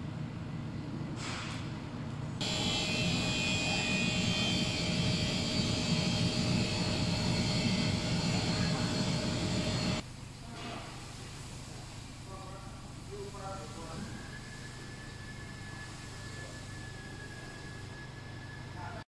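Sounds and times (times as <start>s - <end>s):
cooling fan whir with whine: 0.0s - 19.0s
low machine hum: 0.0s - 19.0s.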